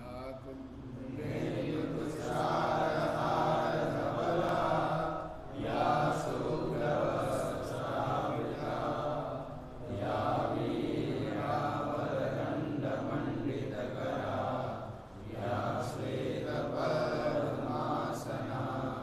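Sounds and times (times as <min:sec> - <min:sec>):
person chanting: 0:00.0 - 0:19.0.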